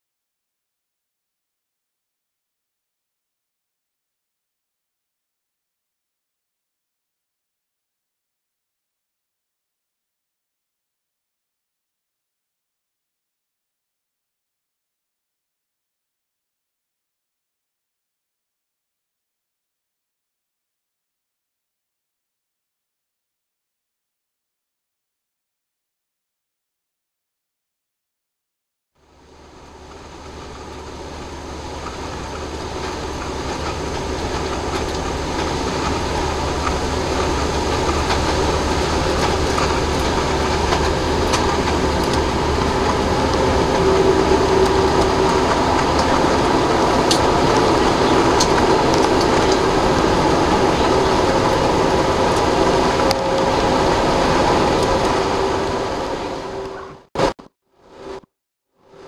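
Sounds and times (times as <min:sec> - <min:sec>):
vehicle engine and road noise: 0:29.0 - 0:59.0.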